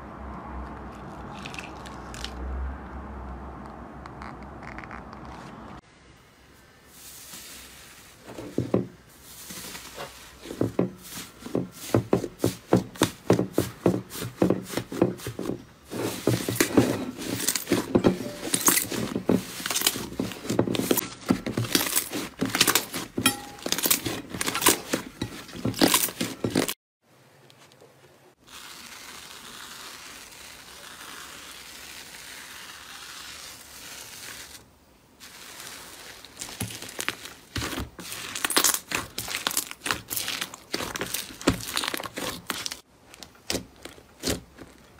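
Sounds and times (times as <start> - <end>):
soft rustling hiss: 6.3 - 11.9.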